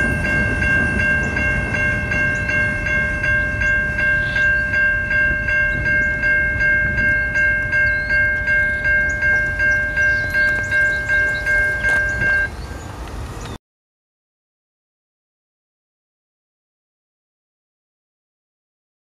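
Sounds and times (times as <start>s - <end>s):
railroad crossing bell ringing: 0.0s - 13.5s.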